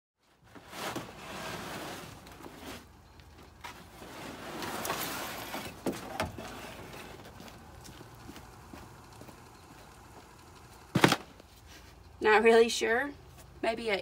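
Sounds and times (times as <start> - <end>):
mat scraping and rustling: 0.2 - 8.8.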